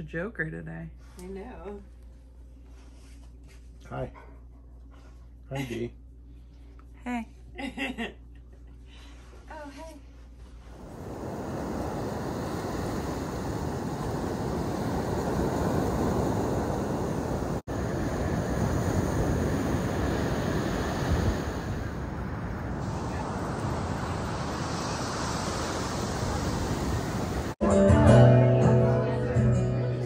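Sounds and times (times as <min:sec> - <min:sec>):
ocean surf washing up beach: 0:10.7 - 0:27.6
wind rumbling on microphone: 0:10.7 - 0:27.6.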